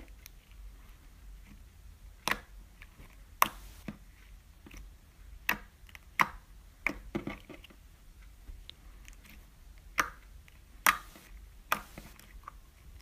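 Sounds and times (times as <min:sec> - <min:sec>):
slime clicking and popping: 0:02.2 - 0:02.5, 0:05.4 - 0:07.0, 0:09.8 - 0:12.1.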